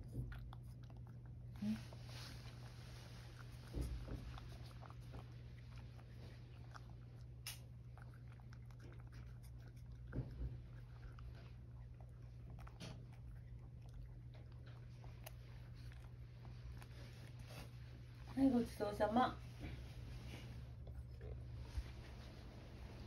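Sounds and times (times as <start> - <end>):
cat licking and chewing food: 0.0 - 23.0
steady low hum: 0.0 - 23.0.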